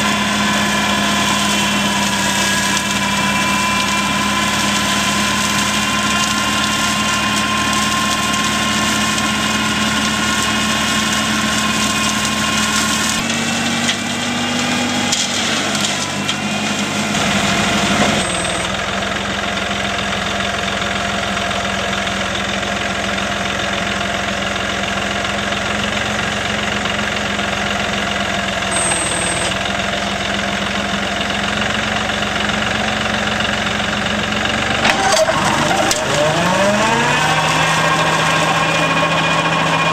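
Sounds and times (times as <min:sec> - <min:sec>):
flail mulcher: 0:00.0 - 0:18.8, 0:34.2 - 0:39.9
tractor engine running: 0:00.0 - 0:39.9.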